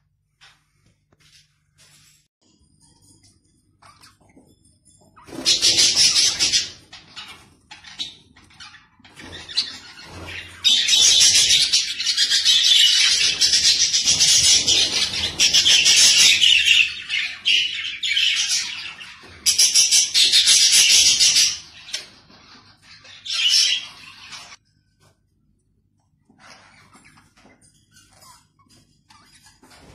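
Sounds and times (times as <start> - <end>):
budgerigars chattering and chirping: 5.2 - 24.6.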